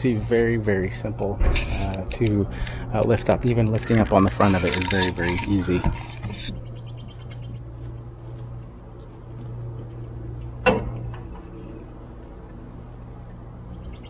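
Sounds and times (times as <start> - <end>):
steady low hum: 0.0 - 14.0
bird trilling: 6.6 - 7.6
sharp clunk of mower deck: 10.6 - 11.2.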